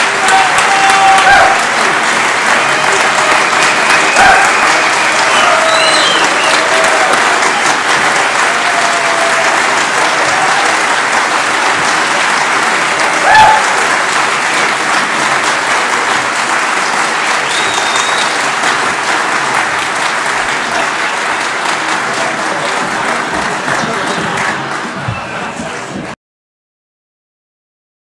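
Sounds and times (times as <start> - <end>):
crowd cry: 0.0 - 26.1
audience applauding: 0.0 - 26.2
short high whistle: 17.4 - 18.4.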